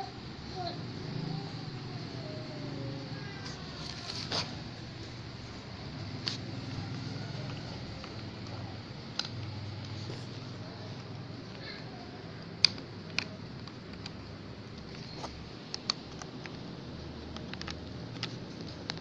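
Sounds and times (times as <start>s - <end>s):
low hum and hiss: 0.0s - 19.0s
light clicks and taps: 17.2s - 19.0s.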